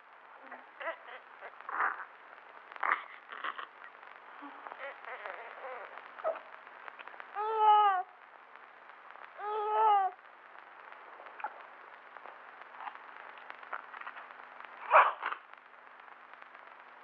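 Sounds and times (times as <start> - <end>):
baby crying: 7.4 - 8.1, 9.4 - 10.2.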